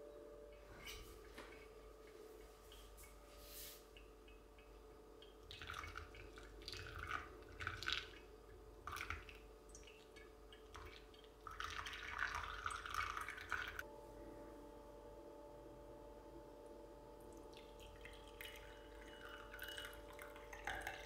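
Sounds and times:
coffee dripping into glass server: 17.3 - 21.0.

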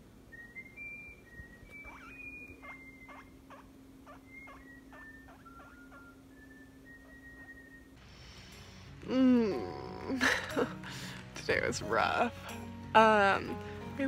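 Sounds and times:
low steady hum: 0.0 - 14.0
guinea pig squeaking: 1.7 - 7.7.

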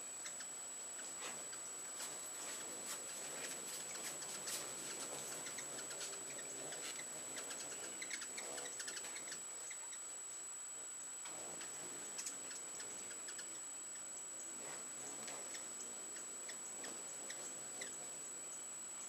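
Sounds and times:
hummingbirds chittering: 0.0 - 10.1, 11.4 - 18.7.

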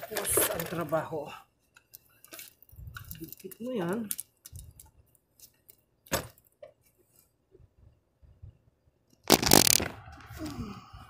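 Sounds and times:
camera handling rustle: 1.7 - 5.8, 9.3 - 10.0.

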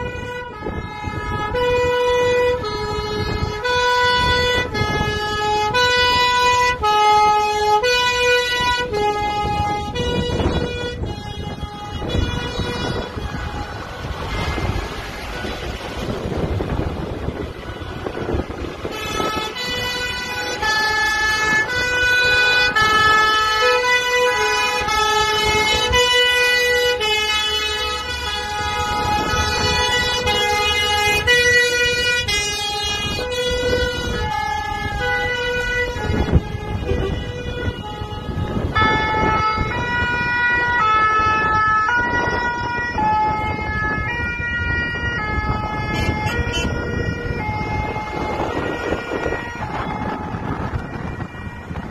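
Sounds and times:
diesel engines running: 0.0 - 51.9
two-tone fire engine sirens: 0.0 - 51.9.

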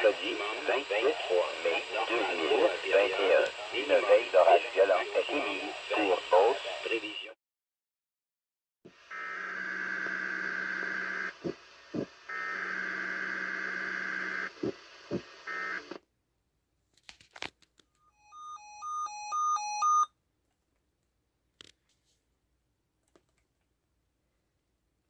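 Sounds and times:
two-tone electronic alarm beeps: 18.1 - 20.1.

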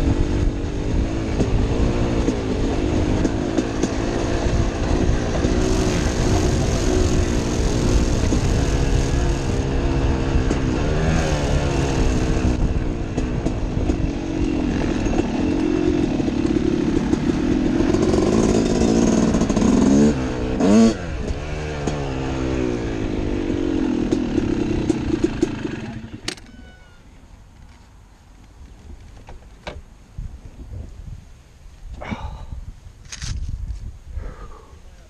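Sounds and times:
dirt bike engine revving: 0.0 - 26.3.

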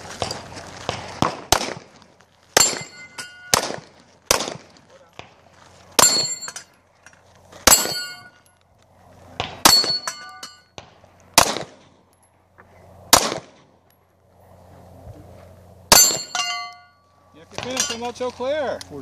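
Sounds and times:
steel plate ringing clang: 2.6 - 3.6, 6.0 - 6.7, 7.7 - 8.4, 9.6 - 10.7, 15.9 - 18.1.

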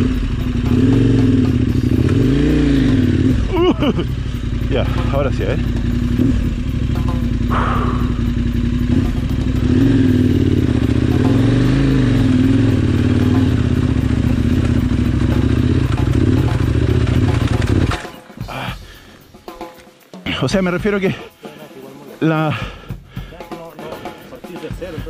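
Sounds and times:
motorcycle engine revving: 0.0 - 18.5.

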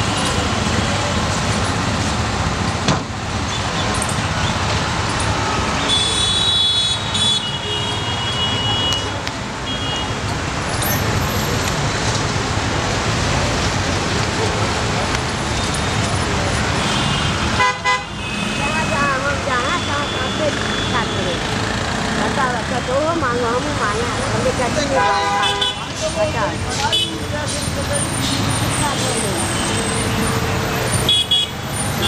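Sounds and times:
road traffic noise: 0.0 - 32.0
indistinct voices: 18.4 - 31.0.

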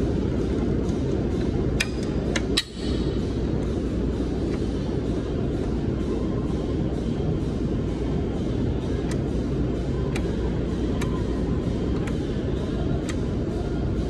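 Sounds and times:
low rumbling noise: 0.0 - 14.0.

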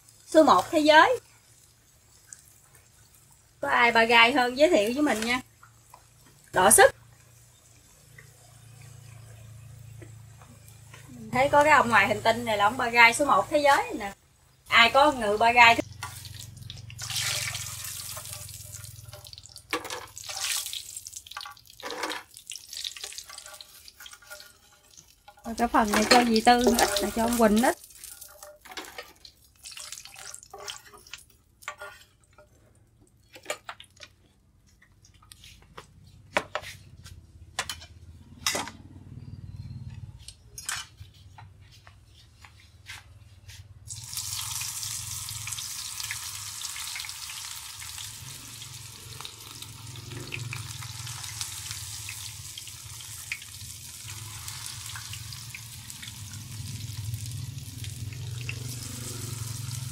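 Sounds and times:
deep frying sizzle: 0.0 - 32.4, 43.8 - 59.9
utensils tapping pan and plate: 21.3 - 29.4.

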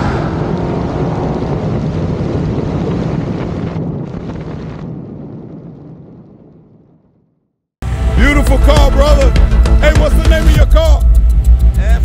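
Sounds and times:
low car rumble: 0.0 - 4.4
wind rushing over microphone: 0.0 - 7.3.

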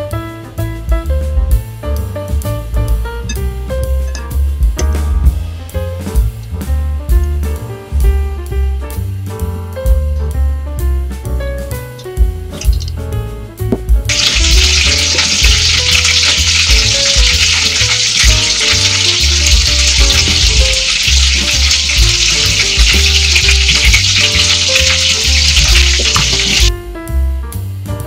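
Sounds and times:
music with walking bass line: 0.0 - 28.0
crackly sizzling hiss: 14.1 - 26.7.

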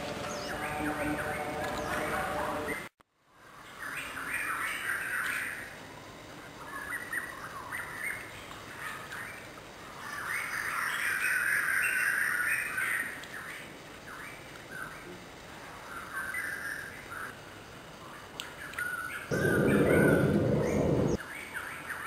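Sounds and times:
birds chirping and calling: 18.7 - 21.2.

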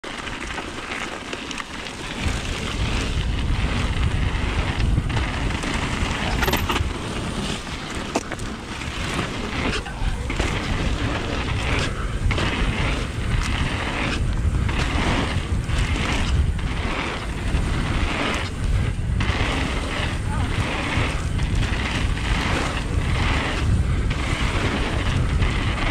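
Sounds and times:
bike clicks: 0.0 - 25.9
bike tyres rolling over gravel: 0.0 - 25.9
wind buffeting microphone: 1.7 - 25.9.

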